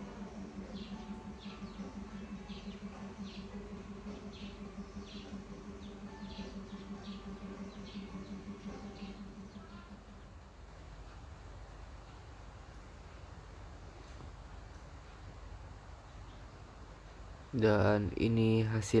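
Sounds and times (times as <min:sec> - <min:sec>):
small bird chirping: 0:00.0 - 0:10.4
steady low hum: 0:00.0 - 0:19.0.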